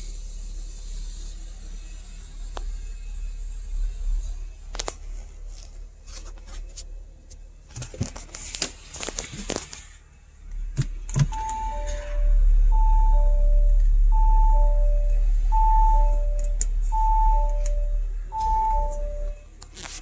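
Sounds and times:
low hum: 0:09.1 - 0:20.0
two-tone parking chime: 0:11.3 - 0:19.5.

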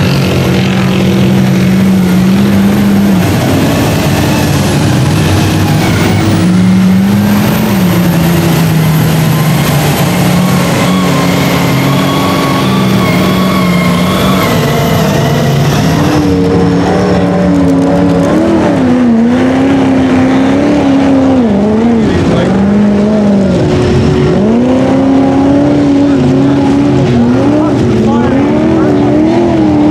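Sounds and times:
diesel truck engine running hard: 0:00.0 - 0:29.9
truck engine revving: 0:00.0 - 0:29.9.

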